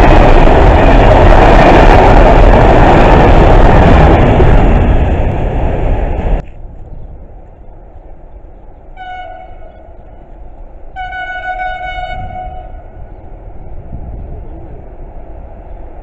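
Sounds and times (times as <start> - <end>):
low rumble: 0.0 - 16.0
train horn blasts: 8.9 - 10.3, 10.9 - 13.2.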